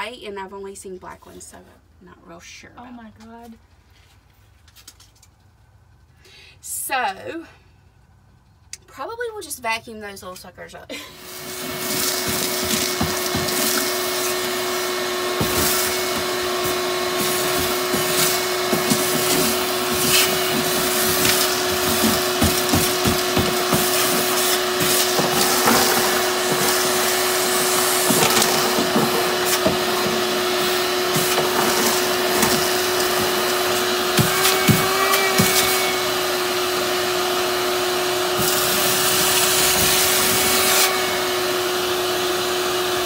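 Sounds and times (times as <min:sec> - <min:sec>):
shop vacuum running: 0:10.9 - 0:43.0
debris clicking up vacuum hose: 0:11.4 - 0:35.9.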